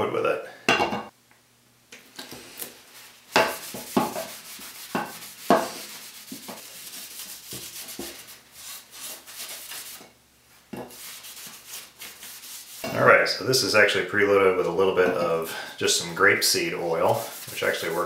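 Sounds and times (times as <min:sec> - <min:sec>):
cloth rag rubbing wooden handle: 0:02.6 - 0:10.0, 0:10.8 - 0:13.0, 0:16.4 - 0:18.0.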